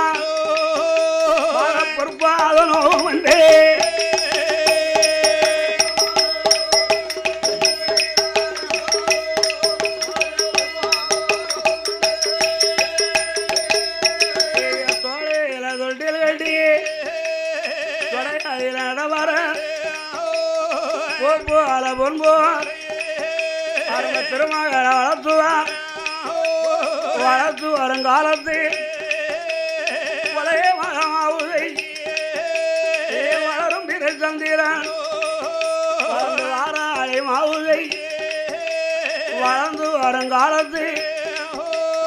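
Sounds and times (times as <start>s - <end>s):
fast percussion strokes: 0.0s - 42.0s
wavering melody: 2.4s - 15.6s.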